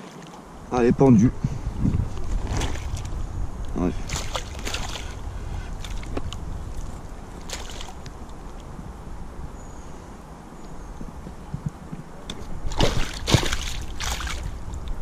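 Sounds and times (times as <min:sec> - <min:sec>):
wind rumble on microphone: 0:00.4 - 0:15.0
water lapping: 0:02.4 - 0:08.7, 0:12.6 - 0:14.7
hand splashing water: 0:12.7 - 0:14.5.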